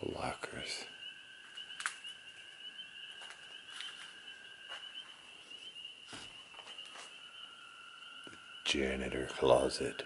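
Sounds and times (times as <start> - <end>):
night insects trilling: 0.0 - 10.0
footsteps on debris: 3.1 - 5.2, 6.0 - 7.2.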